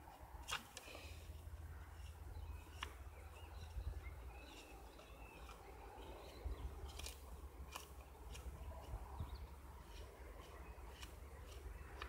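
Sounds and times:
knife scraping a stick: 0:00.0 - 0:12.0
birds chirping: 0:01.7 - 0:12.0
wind rumble on microphone: 0:08.8 - 0:09.6.

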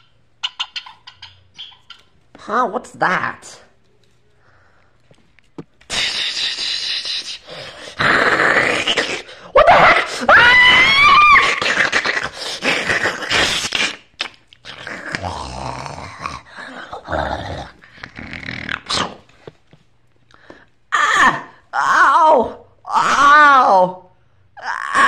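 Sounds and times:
person growling like an animal: 0:06.3 - 0:09.4, 0:14.6 - 0:19.2.

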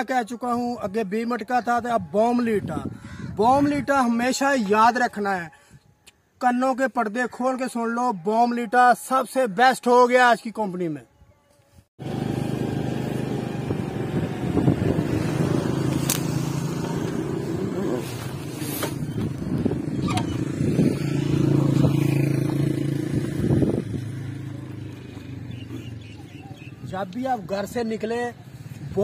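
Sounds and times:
motor engine running: 0:12.0 - 0:26.7.

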